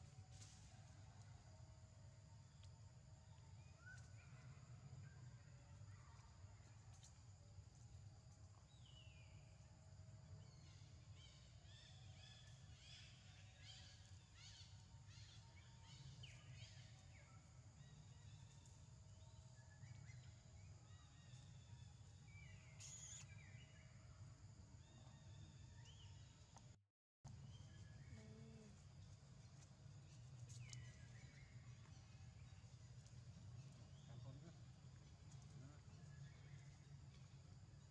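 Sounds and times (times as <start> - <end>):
bird chirps: 22.3 - 23.8.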